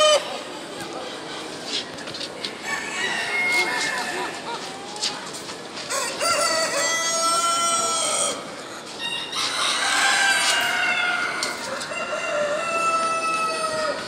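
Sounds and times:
roosters crowing: 0:02.6 - 0:04.6, 0:05.9 - 0:14.0.

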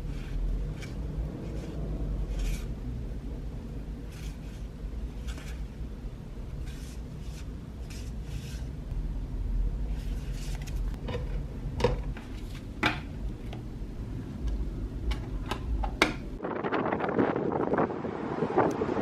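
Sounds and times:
paper cards rustling: 0:09.9 - 0:11.0.

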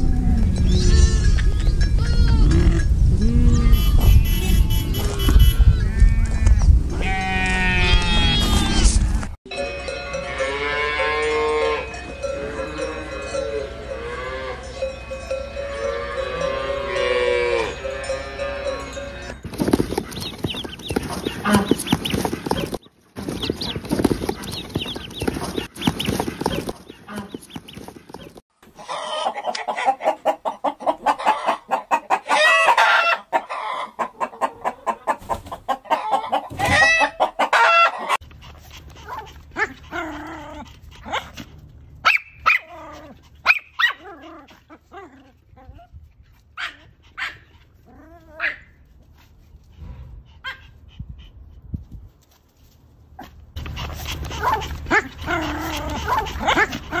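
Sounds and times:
hens clucking: 0:19.4 - 0:39.4
ducklings peeping: 0:19.5 - 0:28.4.

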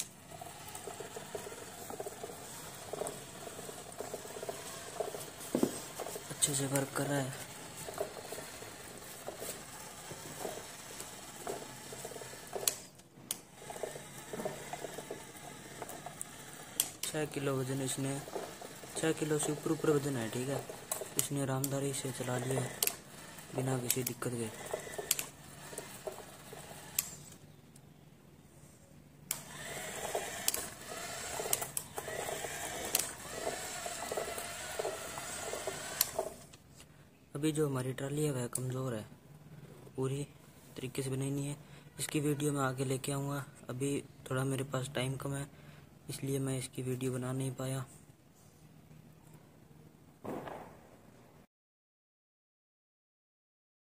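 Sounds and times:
small electric gear motor running: 0:00.0 - 0:27.4, 0:29.3 - 0:36.5.

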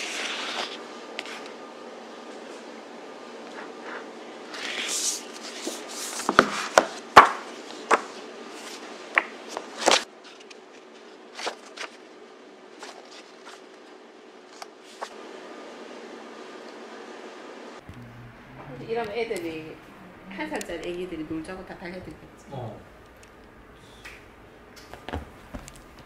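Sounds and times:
paper rustling: 0:00.0 - 0:01.6, 0:03.5 - 0:15.2
book pages flicking: 0:04.5 - 0:12.0.

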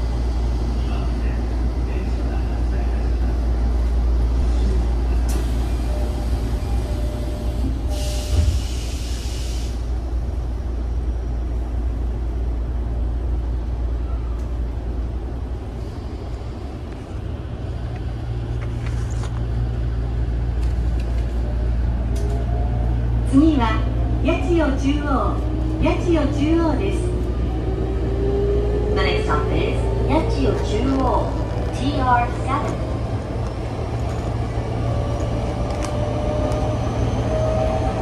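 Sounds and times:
train interior rumble: 0:00.0 - 0:38.0
compressed air hiss: 0:08.0 - 0:09.8.

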